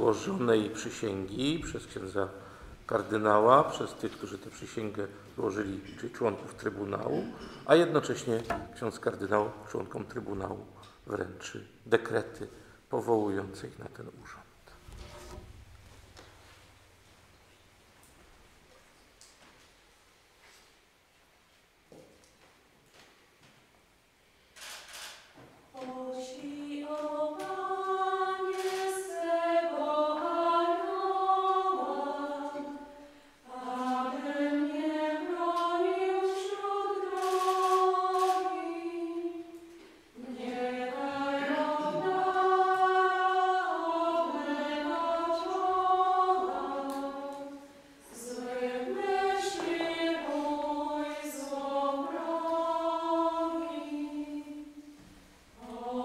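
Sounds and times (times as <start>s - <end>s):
person singing a hymn: 0.0s - 11.3s, 25.8s - 56.0s.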